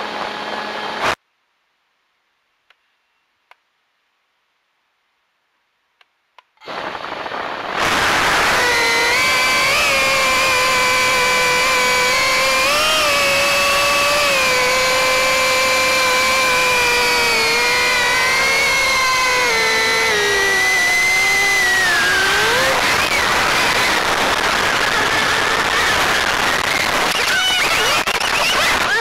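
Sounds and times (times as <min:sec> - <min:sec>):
rushing noise: 0:06.7 - 0:28.9
drone propellers whining: 0:06.7 - 0:29.0.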